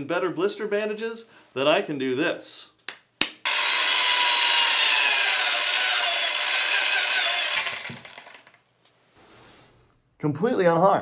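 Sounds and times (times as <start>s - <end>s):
belt sander rasping with whine: 3.5s - 8.6s.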